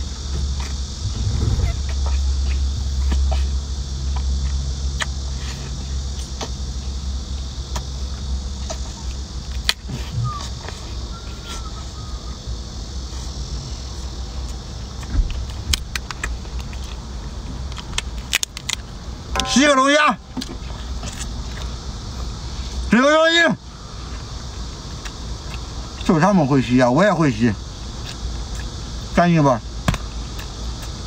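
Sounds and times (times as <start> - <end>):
low steady rumble: 0.0 - 18.1, 18.8 - 22.8
sucking and slurping: 0.5 - 4.2
shell clicking and cracking: 17.7 - 18.9.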